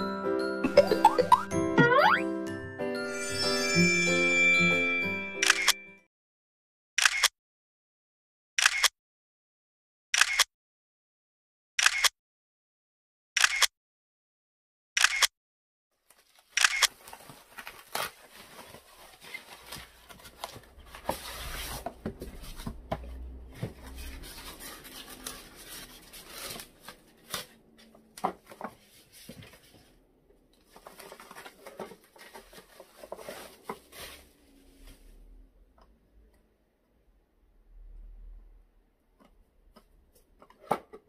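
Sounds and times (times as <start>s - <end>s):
packaging rustling and crackling: 16.0s - 30.0s, 30.6s - 35.0s.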